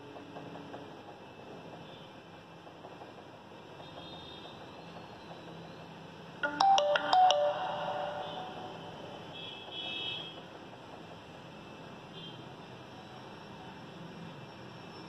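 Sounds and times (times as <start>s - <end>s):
phone startup jingle: 6.4s - 9.3s.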